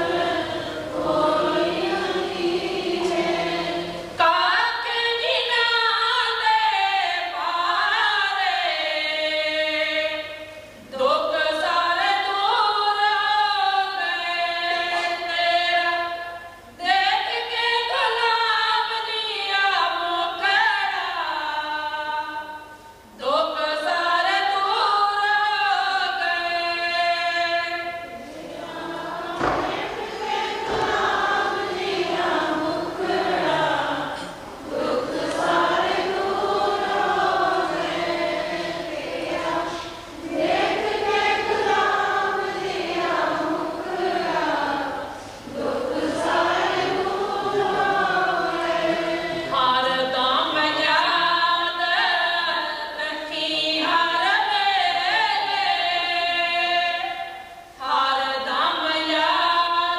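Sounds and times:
group of voices chanting: 0.0 - 4.2, 28.1 - 44.8
singers breathing: 0.5 - 0.9, 45.1 - 45.5.

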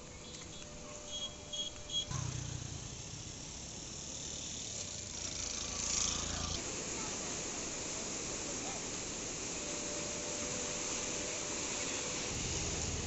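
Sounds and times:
steady high hiss: 0.0 - 13.0
insect chirps: 0.1 - 4.8
low motor hum: 10.1 - 13.0.

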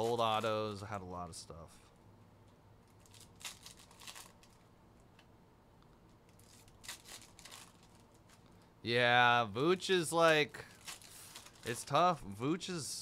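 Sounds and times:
foil wrappers crinkling and tearing: 2.9 - 4.6, 6.3 - 8.5, 10.1 - 12.1.

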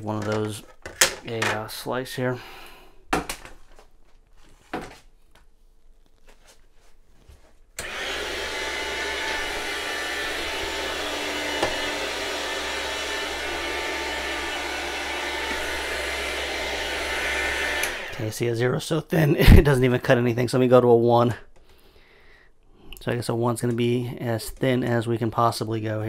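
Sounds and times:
electric meat slicer running: 7.8 - 18.2.

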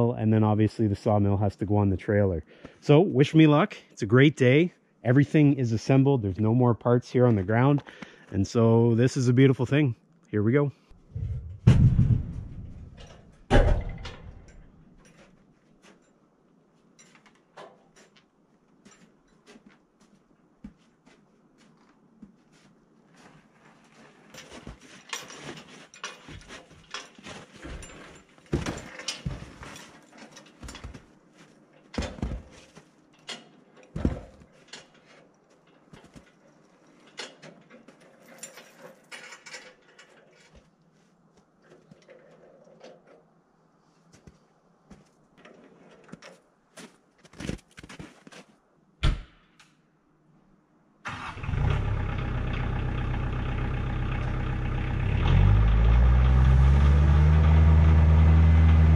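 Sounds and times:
metal trailer knocking and rattling: 11.4 - 14.6
tractor engine running: 51.1 - 58.9.

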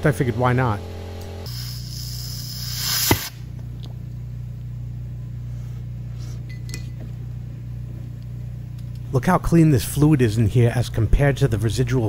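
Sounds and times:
low electrical hum: 0.0 - 12.0
aerosol spray hiss: 1.5 - 3.4.

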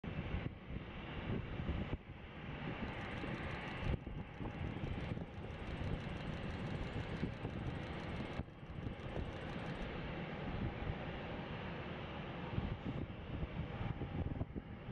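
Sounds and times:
jet engines idling: 1.3 - 14.1
wind buffeting microphone: 12.5 - 14.9.

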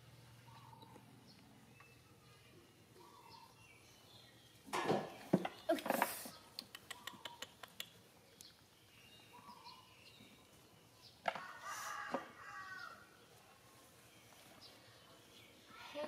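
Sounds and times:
small birds chirping: 0.0 - 16.0
chickens clucking: 4.8 - 7.9.

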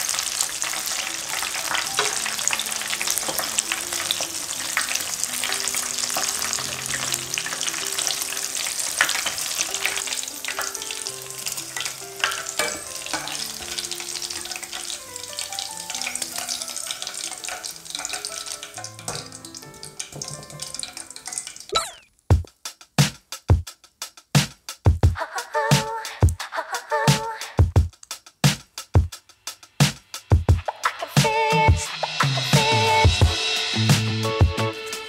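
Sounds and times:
deep-frying sizzle with pops: 0.0 - 26.4, 27.6 - 31.3
soft background music: 0.1 - 21.8, 32.5 - 35.0
metal ladle clinking: 11.8 - 13.8, 17.0 - 22.0
drum beat: 21.8 - 35.0.

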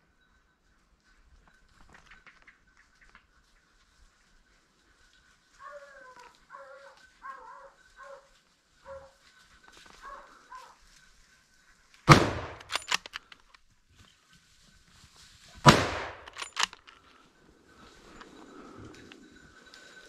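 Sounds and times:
hounds baying: 4.2 - 12.0
loud gunshot: 12.1 - 12.7, 15.6 - 16.3.

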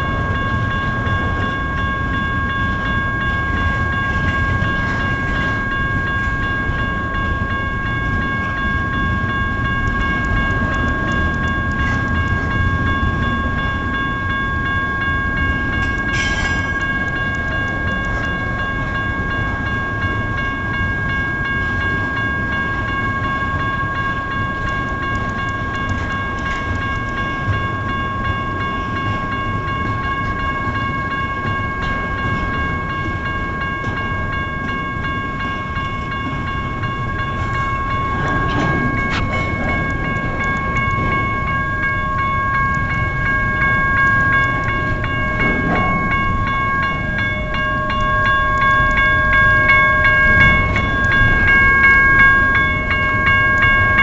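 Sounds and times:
crossing bell ringing: 0.0 - 54.0
train rumbling on rails: 0.0 - 54.0.

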